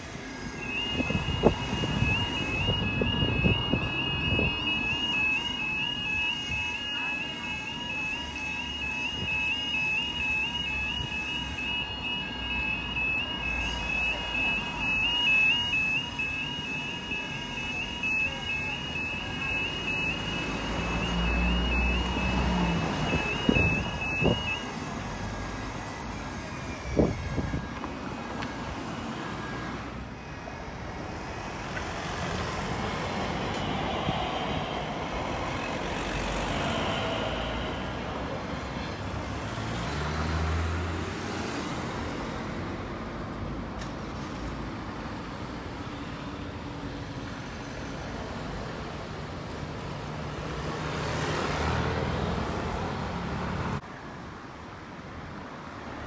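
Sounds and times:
level crossing alarm warbling: 0.0s - 25.0s, 25.7s - 38.5s
road traffic idling: 0.0s - 39.4s
train wheels rushing on rails: 31.6s - 38.9s.

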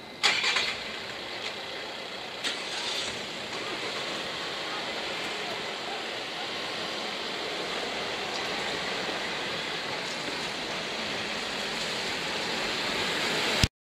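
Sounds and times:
road traffic tyre hiss: 0.0s - 13.7s
van passing close: 0.0s - 13.7s.

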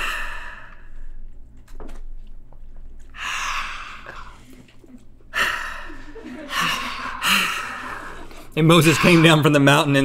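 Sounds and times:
breathy exhale: 0.0s - 1.1s, 3.2s - 4.7s, 5.3s - 9.5s.

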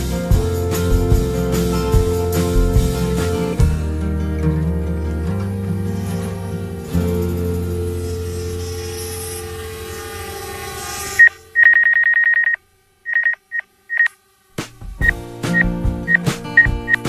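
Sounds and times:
music with sharp percussive hits: 0.0s - 4.2s, 14.6s - 17.0s
music with sustained tones: 0.0s - 11.6s
high electronic beeps: 11.0s - 14.2s, 15.0s - 17.0s.

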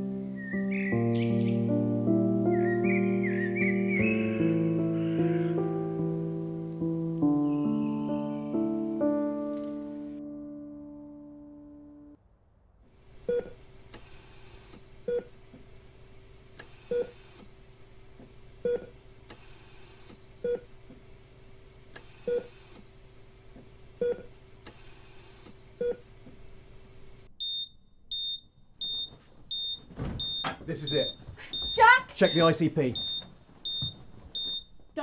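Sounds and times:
steady electrical hum: 13.0s - 34.8s
patient monitor beeping: 13.3s - 15.3s, 16.7s - 17.4s, 18.6s - 20.7s, 22.0s - 22.7s, 27.4s - 34.8s
high-pitched alarm beep: 27.4s - 34.7s.

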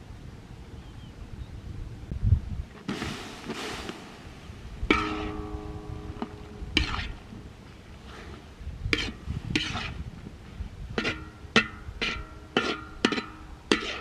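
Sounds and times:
utensil clanking in metal pot: 11.0s - 14.0s.

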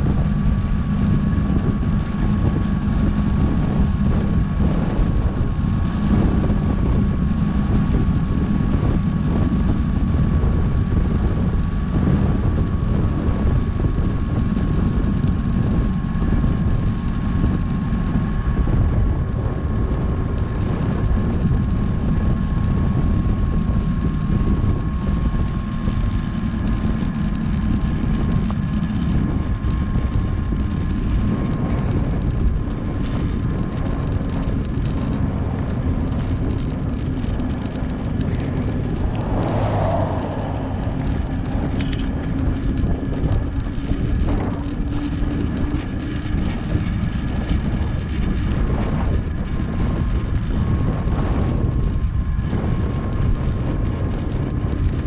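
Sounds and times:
wind buffeting microphone: 0.0s - 55.0s
thin steady whine: 38.2s - 43.4s.

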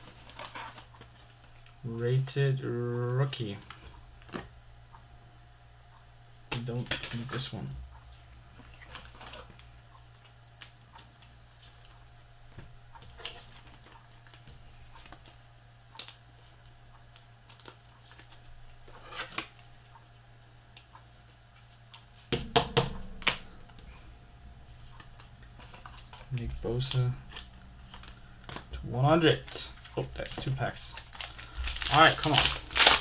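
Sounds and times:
low hum: 18.3s - 33.0s
trading cards clicking and rustling: 24.9s - 33.0s.

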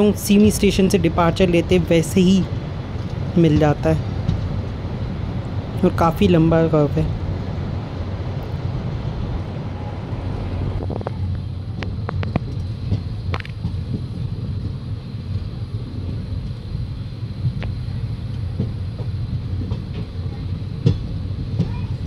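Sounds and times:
wheels clicking on rails: 0.0s - 7.2s, 10.0s - 22.0s
train low rumble: 0.0s - 22.0s.

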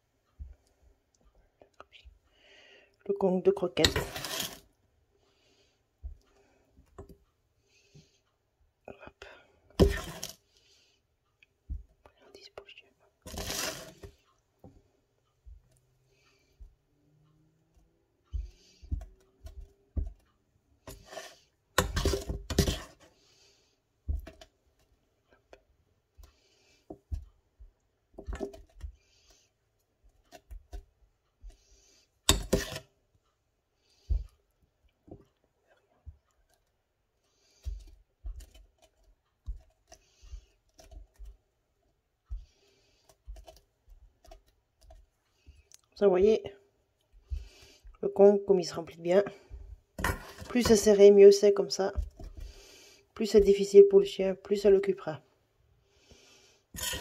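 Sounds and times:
metal spoon clicking and scraping: 56.8s - 57.0s.

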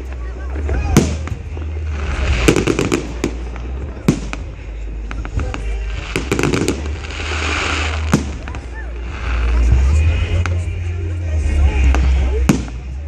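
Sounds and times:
fireworks crackling: 0.0s - 13.0s
firework bang: 5.2s - 8.6s.

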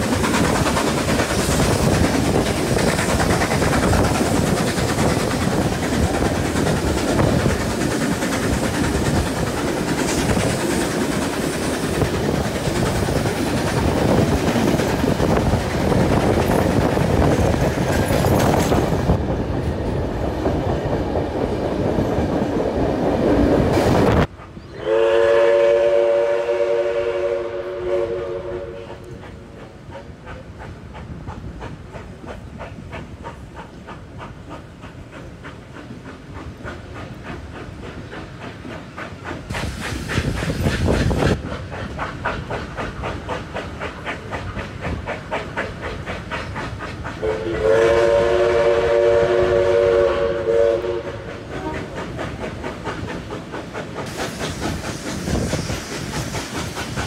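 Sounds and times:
train wheels clattering over rail joints: 0.0s - 24.7s, 29.0s - 57.0s
steam locomotive chime whistle: 24.6s - 29.1s, 47.2s - 52.0s.

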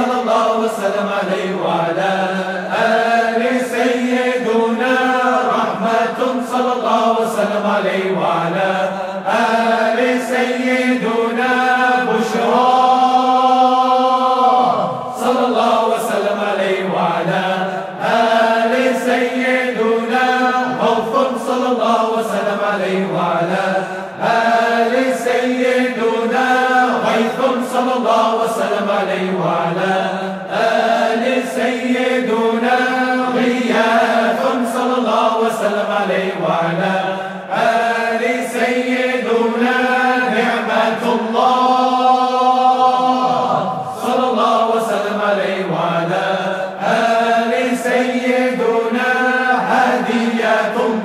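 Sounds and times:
voices chanting: 0.0s - 51.0s.

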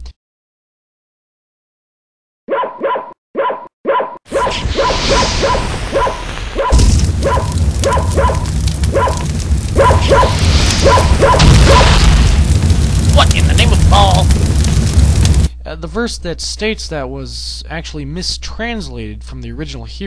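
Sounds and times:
cartoon dog barks: 2.5s - 9.2s, 9.8s - 11.9s
fire rushing: 4.4s - 15.5s
deep rumble: 6.7s - 15.9s.

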